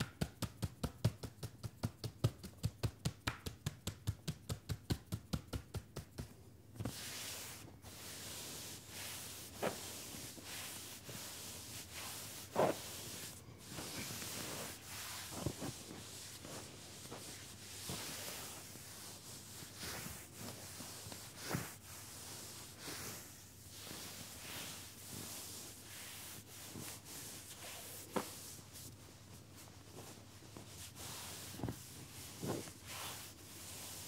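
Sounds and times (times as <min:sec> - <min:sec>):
hands drumming on leg: 0:00.0 - 0:06.4
hands rubbing denim: 0:00.0 - 0:34.0.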